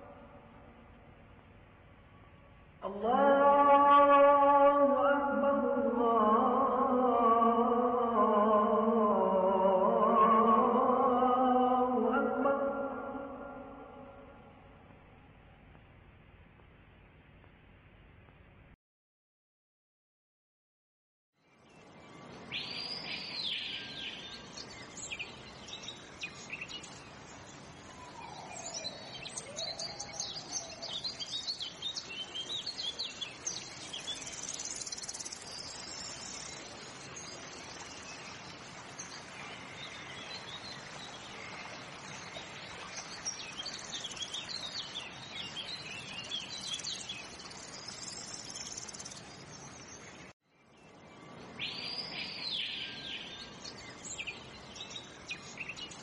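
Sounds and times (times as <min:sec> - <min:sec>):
small birds chirping: 0:21.6 - 0:56.0.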